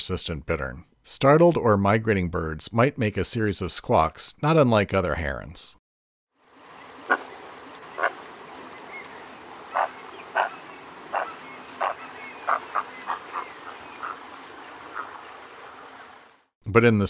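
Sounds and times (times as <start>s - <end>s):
bittern squawks: 9.7s - 14.2s.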